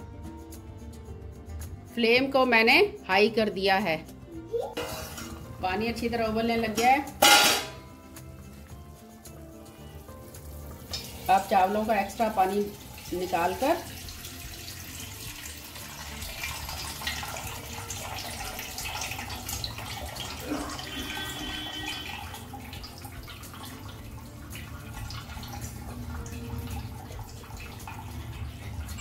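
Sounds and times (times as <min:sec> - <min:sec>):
water dripping: 0:07.6 - 0:29.0
water pouring into steel bowl: 0:09.4 - 0:29.0.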